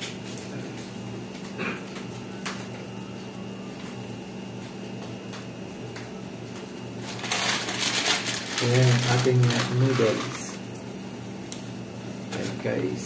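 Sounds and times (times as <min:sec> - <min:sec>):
plastic packet crinkling: 0:07.0 - 0:10.6.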